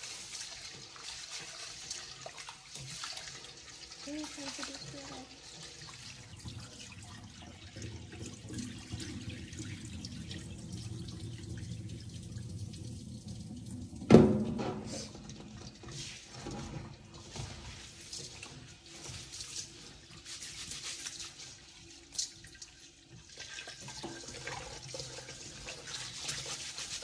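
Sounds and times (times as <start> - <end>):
tap water running into basin: 0.0 - 27.0
metal basin clanking on sink: 14.0 - 15.7.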